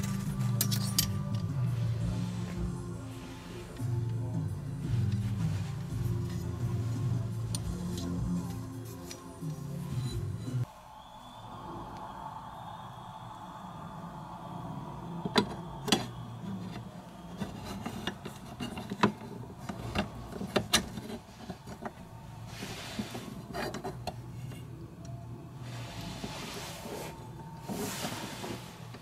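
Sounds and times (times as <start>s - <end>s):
rubbing and scraping: 16.4s - 24.8s, 25.6s - 29.0s.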